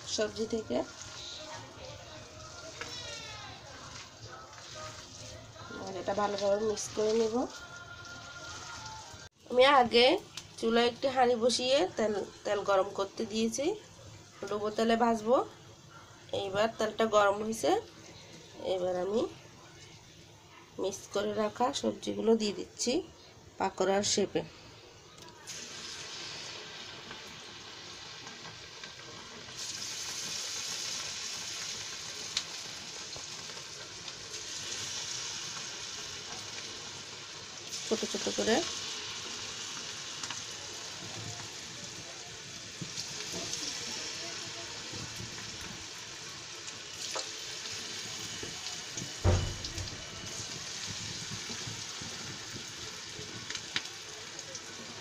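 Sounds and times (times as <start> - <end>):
batter sizzling in hot oil: 0.0 - 55.0
batter thumping into oil: 49.0 - 52.1.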